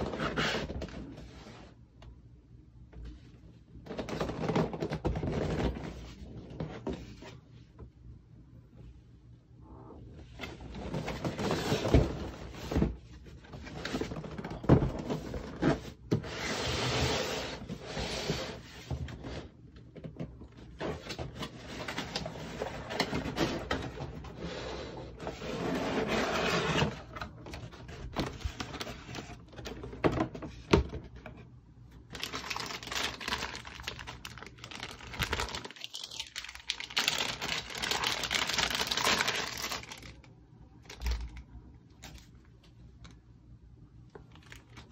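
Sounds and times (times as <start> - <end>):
plastic bag crinkling: 32.1 - 40.2.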